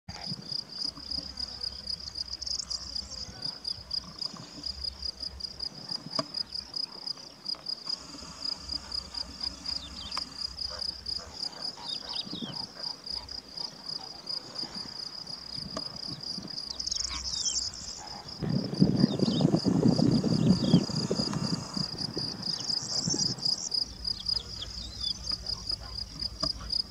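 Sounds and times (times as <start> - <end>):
cricket chirping: 0.1 - 26.9.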